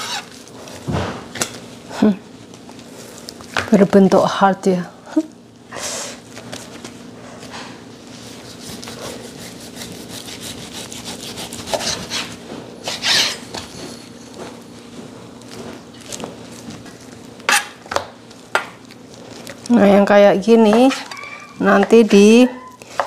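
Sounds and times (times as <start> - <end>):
knife sawing through meat: 8.3 - 13.5.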